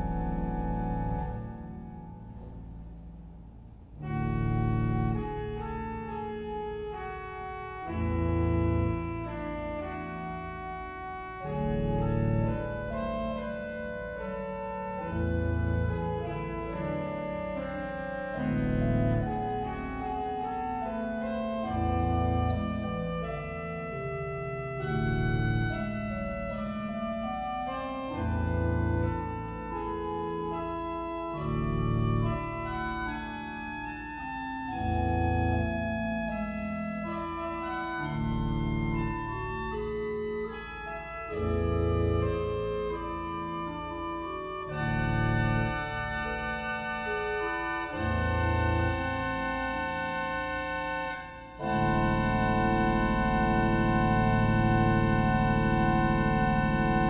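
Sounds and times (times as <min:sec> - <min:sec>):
electronic organ chords and melody: 0:00.0 - 0:02.5, 0:03.9 - 0:57.0
deep organ bass note: 0:51.6 - 0:57.0.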